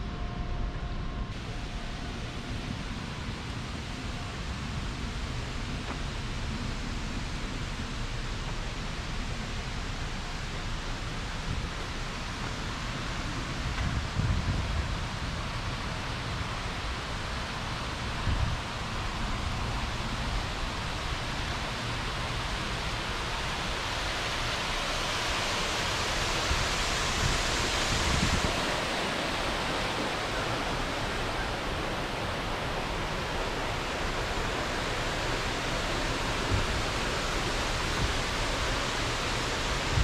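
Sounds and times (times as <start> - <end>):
water spilling over fountain edge: 14.8 - 40.0.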